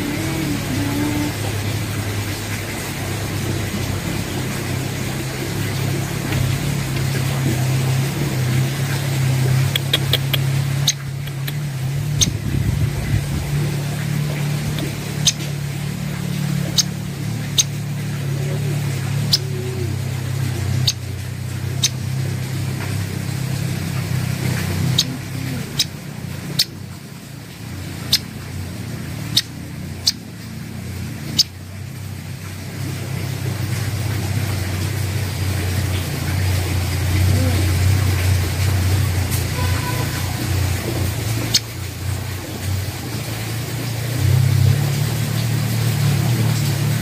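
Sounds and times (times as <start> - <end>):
low mechanical hum: 0.0 - 47.0
sharp short clicks: 9.7 - 11.6.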